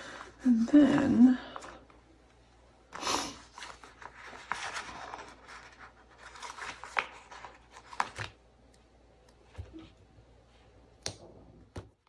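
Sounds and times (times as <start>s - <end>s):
sticker sheet rustling: 3.5s - 8.4s.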